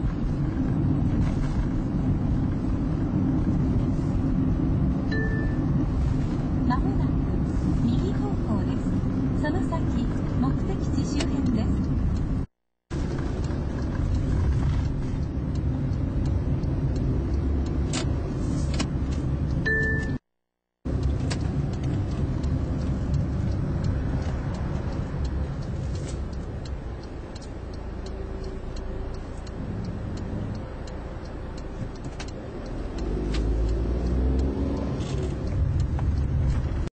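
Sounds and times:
car engine and tyre rumble: 0:00.0 - 0:20.2, 0:20.8 - 0:36.9
short beep: 0:05.1 - 0:05.7, 0:19.7 - 0:20.2.

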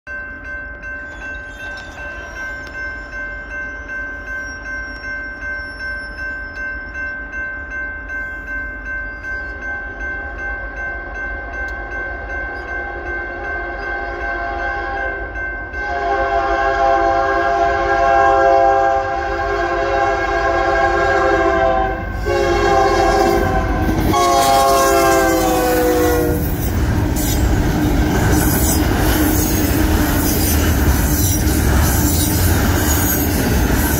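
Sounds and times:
crossing bell ringing: 0:00.0 - 0:33.9
train horn blasts: 0:13.6 - 0:27.5
rumble of freight cars rolling: 0:17.0 - 0:33.9.

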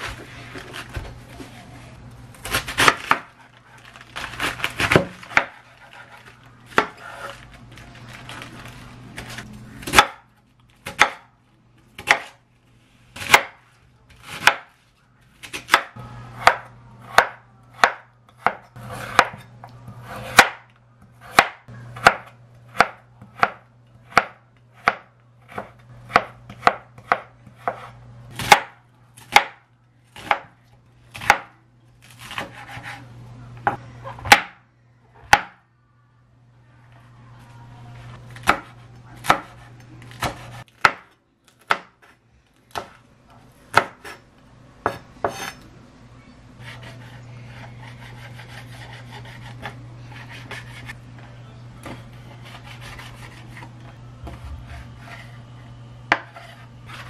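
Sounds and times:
knife chopping on wooden board: 0:12.0 - 0:12.4, 0:15.6 - 0:20.6, 0:21.2 - 0:29.6, 0:38.4 - 0:42.1, 0:43.7 - 0:44.2.

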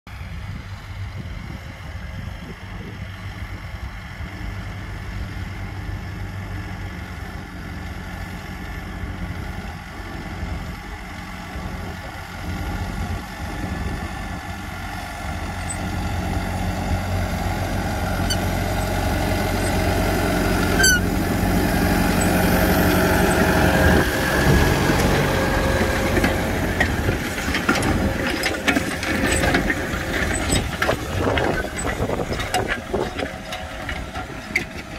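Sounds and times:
tractor diesel engine under load: 0:00.1 - 0:34.9
harrow discs cutting through soil: 0:07.8 - 0:34.9
metal clanks: 0:25.8 - 0:34.9.

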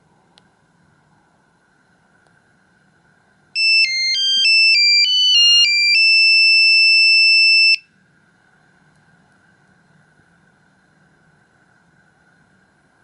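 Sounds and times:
phone startup melody: 0:03.6 - 0:07.8.

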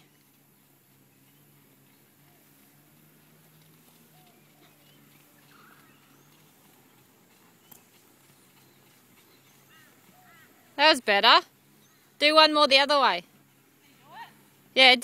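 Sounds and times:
faint bird chirps: 0:04.0 - 0:10.8.

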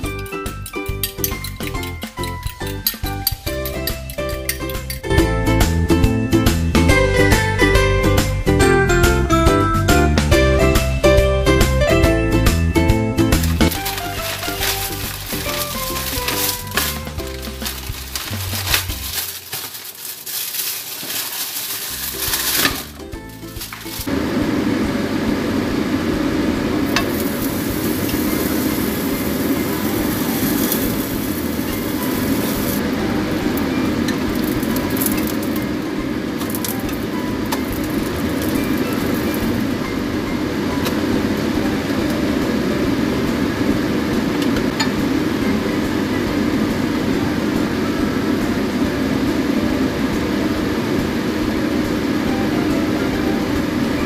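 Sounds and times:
steady droning noise: 0:13.3 - 0:54.0.

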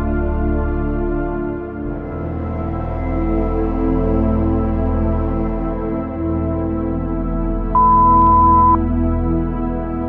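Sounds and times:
ambient music with sustained tones: 0:00.0 - 0:10.0
loud steady beep: 0:07.8 - 0:08.8.

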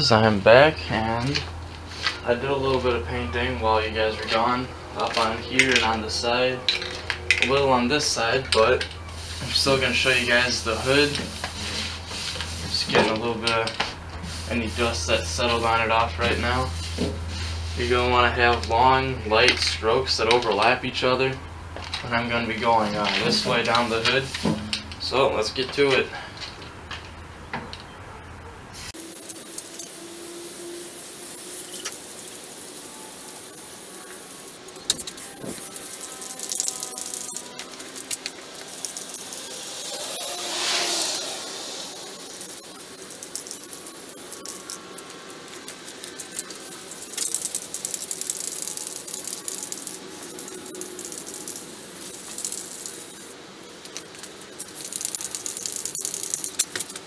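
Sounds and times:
spray can ball rattling: 0:08.8 - 0:17.8, 0:29.0 - 0:57.0
spray paint can hissing: 0:09.1 - 0:13.0, 0:13.7 - 0:18.0, 0:23.2 - 0:24.5, 0:28.8 - 0:57.0.

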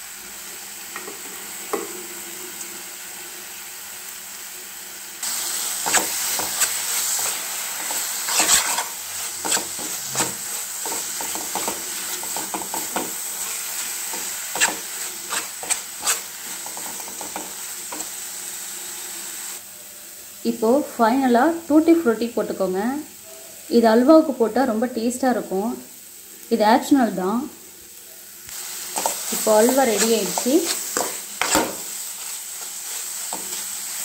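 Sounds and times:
food sizzling in a pan: 0:00.0 - 0:34.0
spatula scraping and tapping pan: 0:05.8 - 0:18.1, 0:28.9 - 0:33.8.

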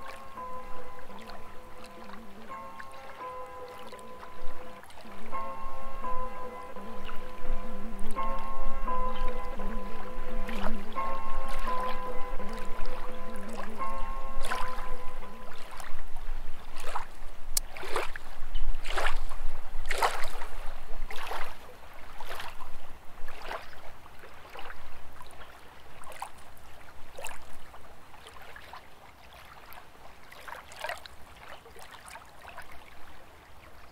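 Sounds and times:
water swishing: 0:00.0 - 0:33.9.

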